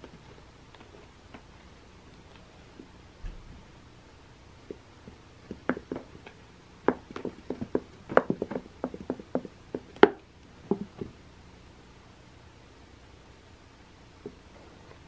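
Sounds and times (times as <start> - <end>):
cat paws tapping and scratching: 0.0 - 2.5, 4.7 - 11.2.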